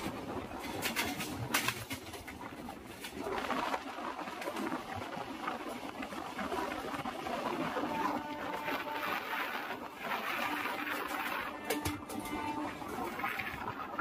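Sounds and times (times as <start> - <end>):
train wheels rumbling on rail: 0.0 - 3.7, 7.6 - 14.0
wind on microphone: 0.0 - 14.0.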